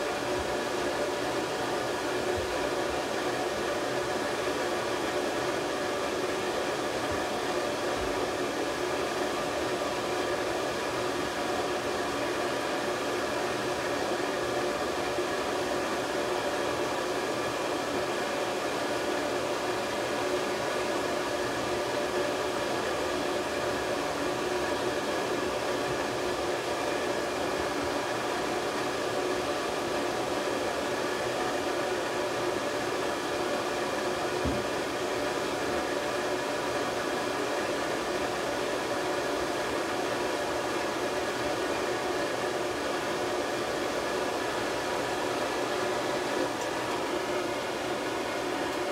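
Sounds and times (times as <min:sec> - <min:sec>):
hair dryer blowing: 0:00.0 - 0:48.9.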